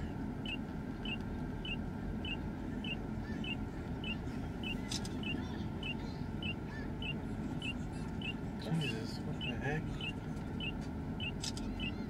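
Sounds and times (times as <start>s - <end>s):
car cabin engine and road noise: 0.0s - 12.0s.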